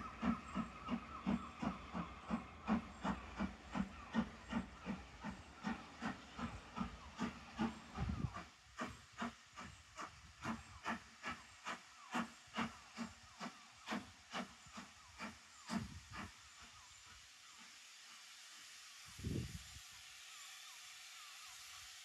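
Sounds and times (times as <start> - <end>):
steam locomotive chuffing: 0.0 - 22.0.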